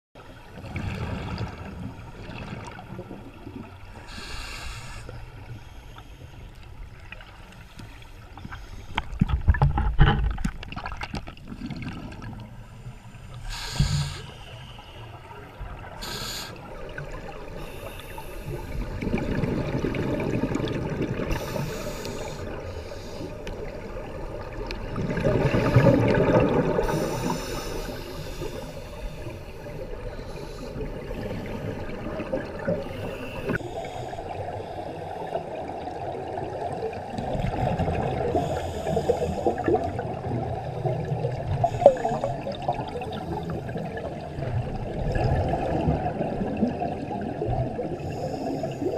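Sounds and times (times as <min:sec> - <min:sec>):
bubbles rushing and gurgling: 0:00.3 - 0:04.3, 0:09.1 - 0:12.8, 0:15.5 - 0:48.9
diver breathing through regulator: 0:04.0 - 0:06.5, 0:13.3 - 0:15.3, 0:16.0 - 0:16.7, 0:17.5 - 0:19.0, 0:21.2 - 0:23.6, 0:25.4 - 0:35.1, 0:38.2 - 0:39.8, 0:48.0 - 0:48.9.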